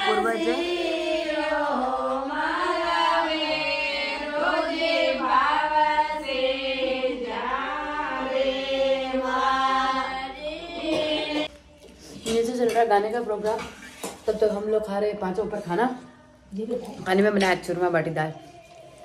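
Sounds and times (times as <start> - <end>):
women singing folk song together: 0.0 - 11.6.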